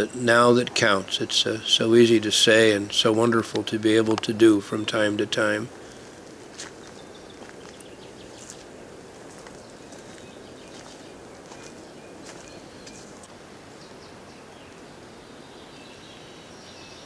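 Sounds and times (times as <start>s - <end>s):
steady low hiss: 0.0s - 17.0s
faint high bird chirps: 9.6s - 13.2s.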